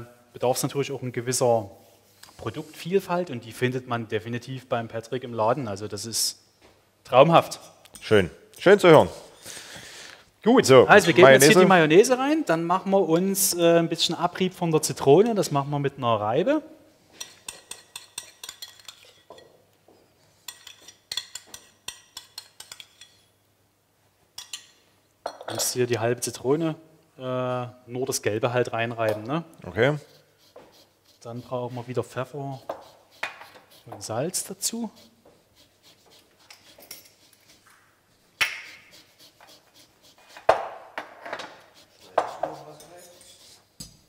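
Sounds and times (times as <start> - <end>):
spoon clinking against metal bowl: 17.2 - 19.5, 20.5 - 23.2, 24.4 - 25.5.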